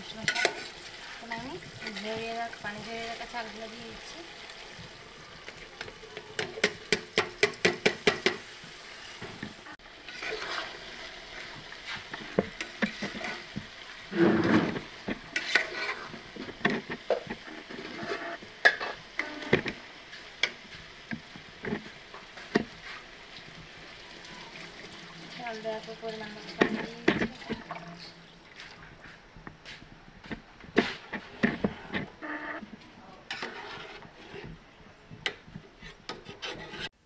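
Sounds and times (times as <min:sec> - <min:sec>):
metal spatula scraping pot: 0:00.1 - 0:04.0, 0:10.0 - 0:19.8, 0:26.2 - 0:28.2, 0:30.8 - 0:32.6, 0:33.2 - 0:34.6, 0:35.2 - 0:37.0.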